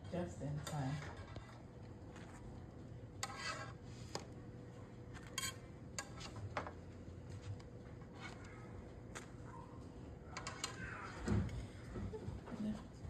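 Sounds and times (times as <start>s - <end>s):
kitchen utensils clinking and scraping: 0.0s - 1.6s, 5.2s - 6.4s
faint steady hum: 0.0s - 13.0s.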